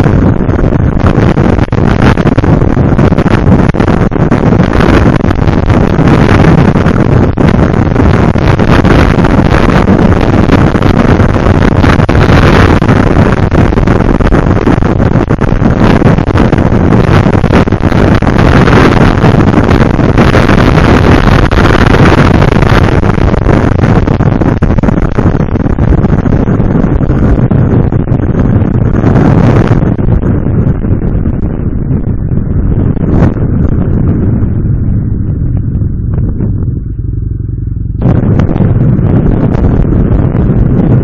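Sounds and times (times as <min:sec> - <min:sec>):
wind rush over microphone: 0:00.0 - 0:41.0
motorcycle engine running: 0:24.6 - 0:41.0.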